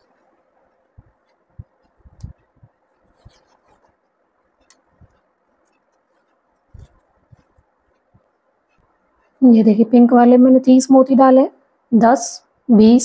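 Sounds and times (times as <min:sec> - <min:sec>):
scratchy rustles: 0:01.8 - 0:04.0, 0:04.6 - 0:07.7.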